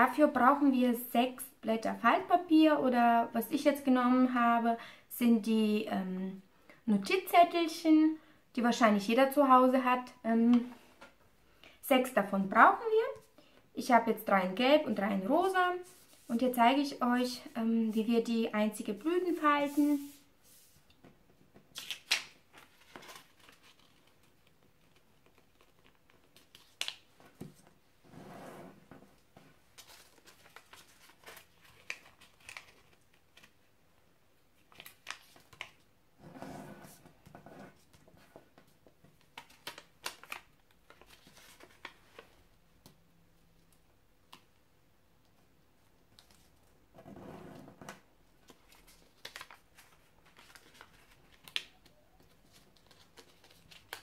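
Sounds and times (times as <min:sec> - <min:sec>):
paper rustling and creasing: 0:21.7 - 0:27.8, 0:29.4 - 0:33.6, 0:36.6 - 0:42.4, 0:47.6 - 0:54.0.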